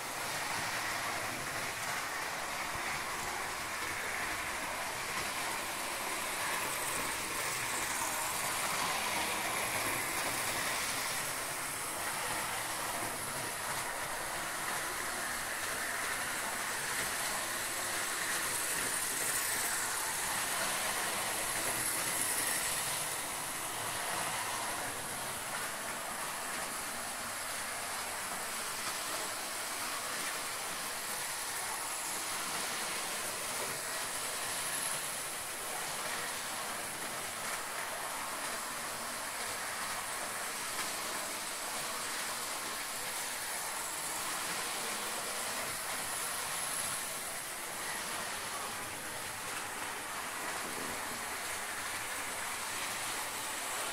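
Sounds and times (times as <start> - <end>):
model trains running on track: 0.0 - 53.9.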